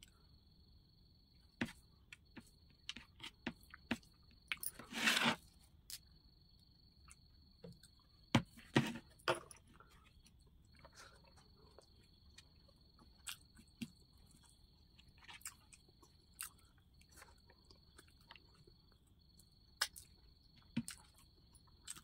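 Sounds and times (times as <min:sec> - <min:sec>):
scrape or rustle: 0:04.7 - 0:05.5
chewing and mouth smacks: 0:09.7 - 0:22.0.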